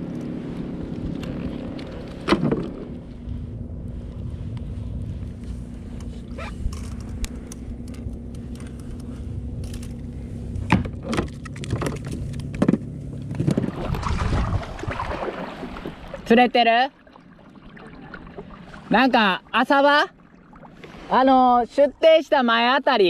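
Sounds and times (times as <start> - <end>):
steady low rumble: 0.0 - 22.4
fishing tackle clicks and knocks: 6.0 - 13.6.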